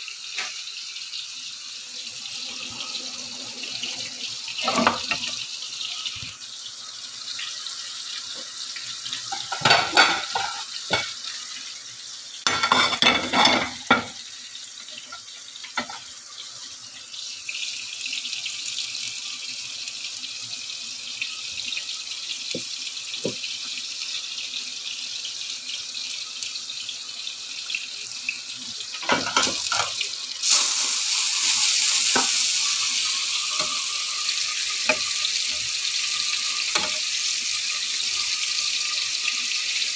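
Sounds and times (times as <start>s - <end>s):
cooking hiss: 0.0s - 39.9s
cookware and plate clattering: 4.6s - 5.4s, 9.3s - 11.2s, 12.5s - 14.2s, 15.0s - 16.1s, 29.0s - 30.0s, 36.7s - 37.0s.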